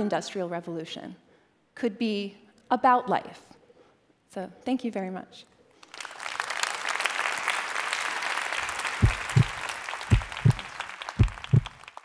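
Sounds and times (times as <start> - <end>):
audience applauding: 5.8 - 12.0
deep thumps: 9.0 - 11.8.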